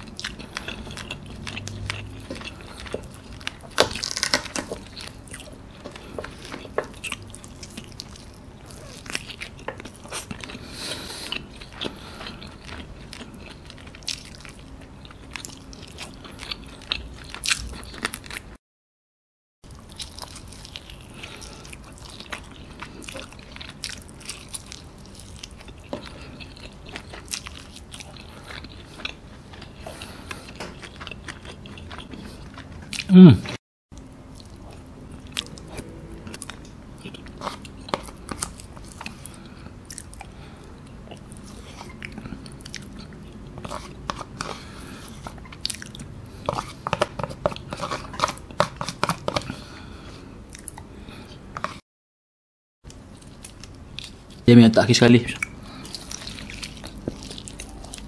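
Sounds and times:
chewing fried chicken: 0.0s - 18.6s, 19.7s - 51.8s, 52.9s - 58.0s.

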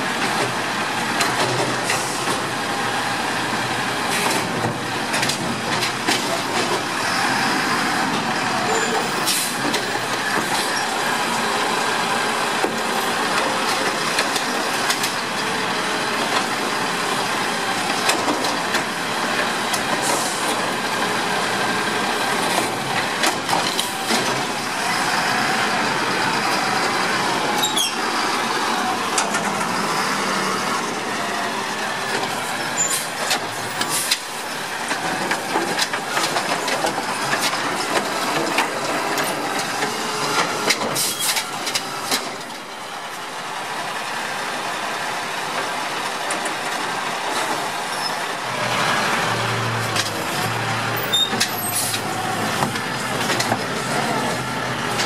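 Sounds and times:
knocks and clatters of carts: 0.0s - 55.0s
brief squeal: 8.7s - 9.5s, 27.6s - 28.0s.

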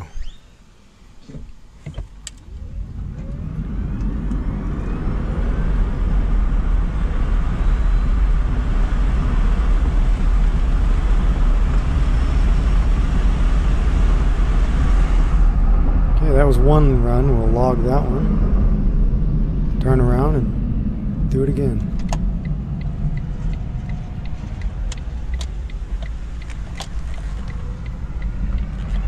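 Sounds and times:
tyre and wind noise: 1.2s - 16.5s.

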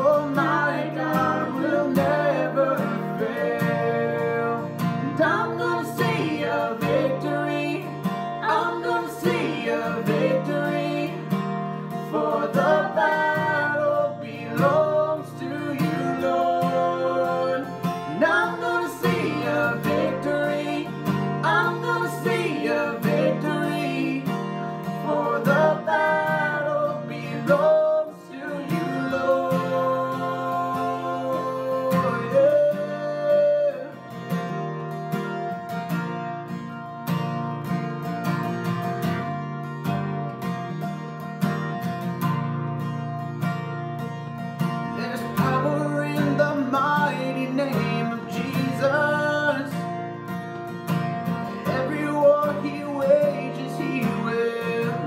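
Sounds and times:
man and woman singing: 0.0s - 34.3s, 44.9s - 49.9s, 51.4s - 55.0s
acoustic guitar: 0.0s - 55.0s.

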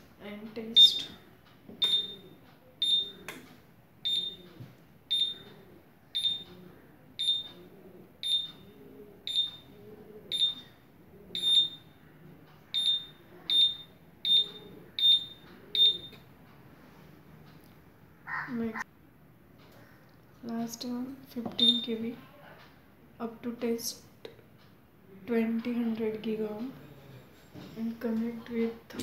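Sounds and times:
tester beeping: 1.8s - 3.1s, 11.4s - 11.9s, 12.8s - 16.2s, 21.5s - 22.0s.

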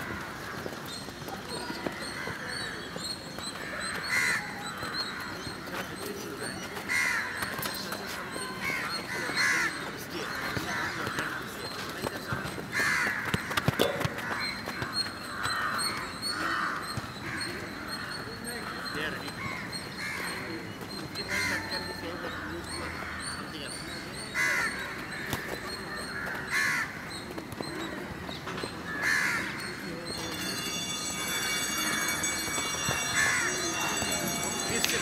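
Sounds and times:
crows cawing: 1.9s - 2.9s, 3.6s - 5.8s, 6.8s - 11.7s, 12.7s - 20.6s, 21.2s - 23.5s, 24.3s - 27.1s, 28.9s - 29.8s, 30.5s - 35.0s
footballs being kicked: 10.4s - 15.6s.

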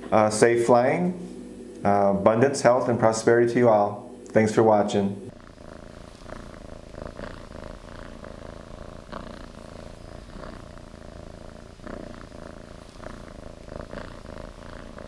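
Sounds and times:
kitten purring: 5.2s - 15.0s.

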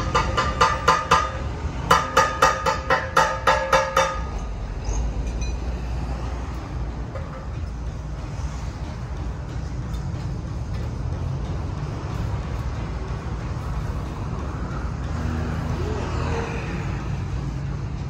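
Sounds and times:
hammer striking steel: 0.0s - 5.8s.

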